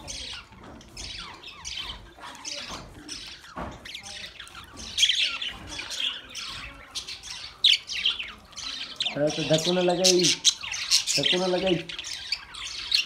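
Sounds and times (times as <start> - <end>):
budgerigars chattering: 0.0 - 13.0.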